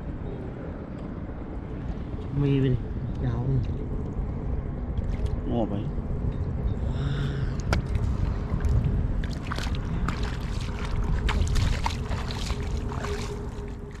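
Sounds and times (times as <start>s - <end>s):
steady low rumble: 0.0s - 14.0s
water sloshing and splashing: 4.9s - 5.5s, 7.6s - 14.0s
water drips: 7.6s - 14.0s.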